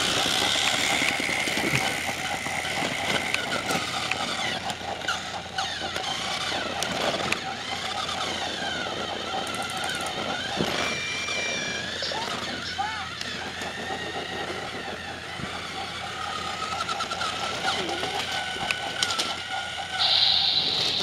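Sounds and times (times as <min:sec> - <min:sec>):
toy train motor whirring: 0:00.0 - 0:21.0
short squeaky chirps: 0:20.0 - 0:21.0.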